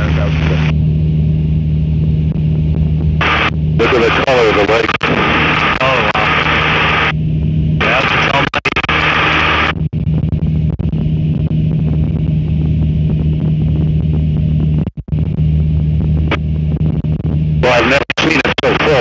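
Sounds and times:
radio static hiss: 0.0 - 0.8, 3.2 - 7.1, 7.8 - 12.2, 13.2 - 19.0
light aircraft engine droning: 0.0 - 19.0.

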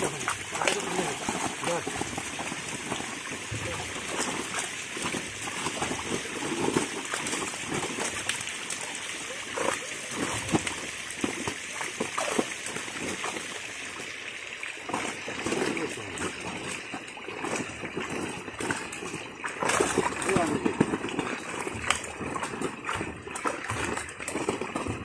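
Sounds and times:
fish thrashing and splashing: 0.0 - 25.0
hands sloshing in water: 14.9 - 25.0.

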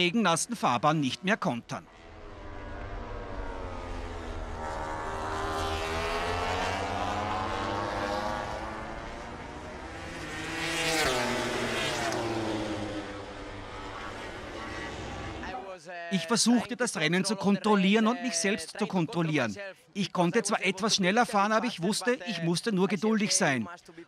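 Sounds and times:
racing motorcycle engines revving: 1.8 - 15.6
motorcycle passing close: 1.9 - 15.6.

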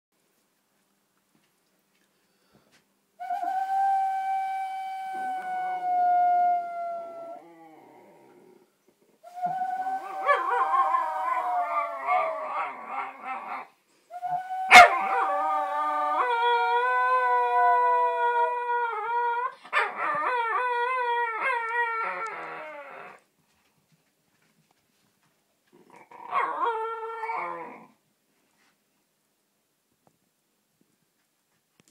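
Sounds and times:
puppy howling: 9.4 - 13.7, 14.5 - 23.2.

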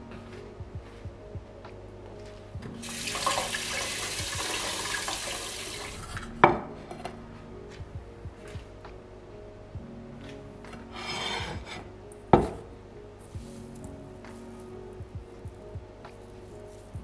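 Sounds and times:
water running from tap: 2.8 - 6.2.

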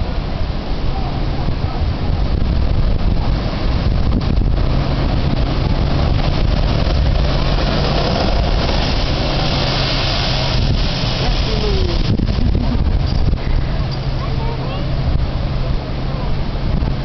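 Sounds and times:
heavy surf washing over rock: 0.0 - 17.0
steady low hum: 1.5 - 17.0
blowhole spray rushing hiss: 4.7 - 14.5.

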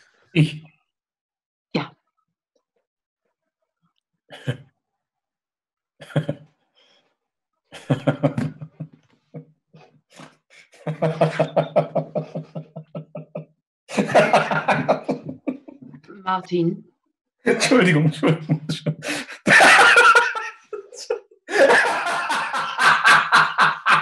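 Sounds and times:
man laughing: 6.0 - 6.4, 7.8 - 9.0, 10.6 - 16.0, 17.5 - 24.0.

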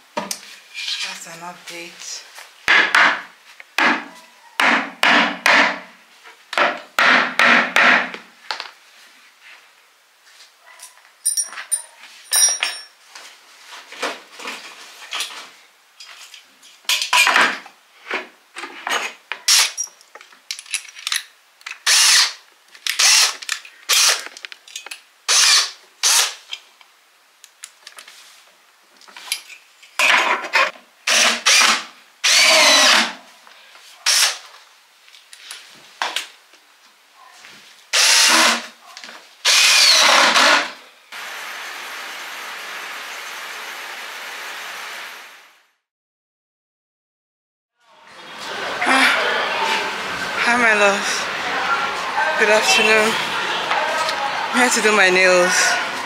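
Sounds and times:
sharp knocks: 2.7 - 5.8, 6.6 - 8.1
cordless drill running: 21.9 - 22.3, 31.1 - 33.1, 38.0 - 38.6, 39.5 - 44.4.

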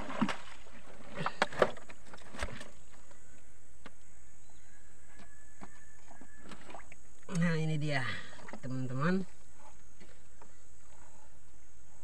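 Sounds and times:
water splashing: 0.0 - 1.7.

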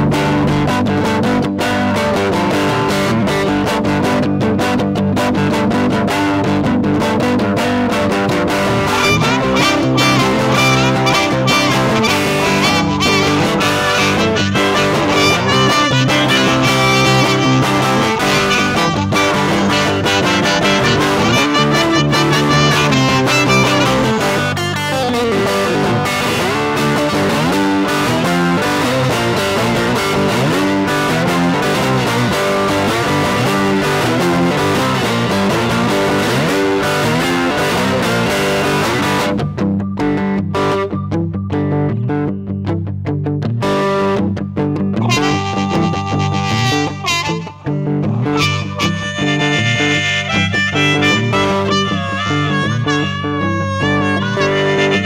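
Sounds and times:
blues guitar: 0.0 - 55.0
harmonica: 8.6 - 25.6, 45.0 - 55.0.

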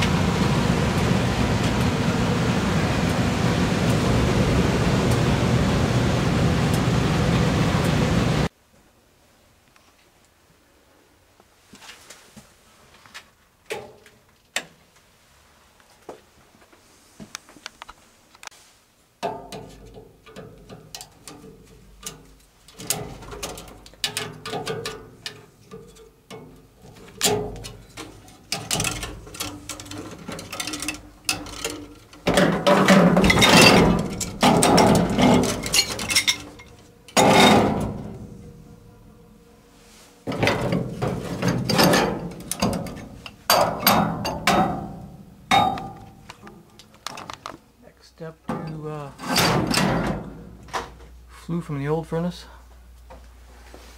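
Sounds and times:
pipe wrench clanking on metal: 19.2 - 38.5, 40.3 - 47.3, 48.5 - 50.9
grating metal noise: 22.7 - 46.8, 48.5 - 51.0.

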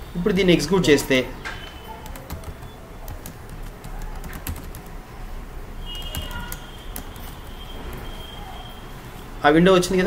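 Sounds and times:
keyboard keys clicking: 2.0 - 5.0, 6.0 - 8.2.

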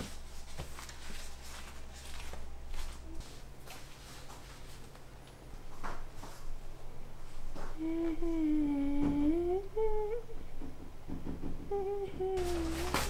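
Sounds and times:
person humming a tune: 7.6 - 10.5, 11.6 - 13.0.

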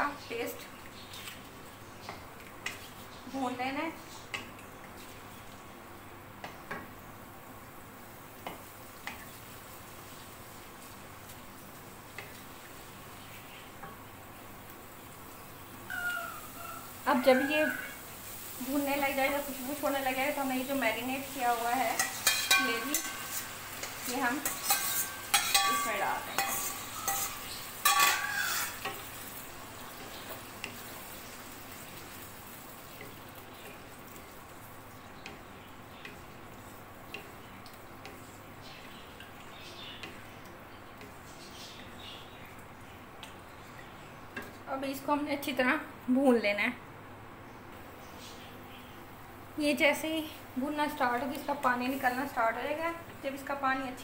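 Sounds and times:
paste sizzling in hot fat: 16.1 - 39.1, 50.9 - 52.6
wooden spatula scraping a pan: 21.7 - 29.4.

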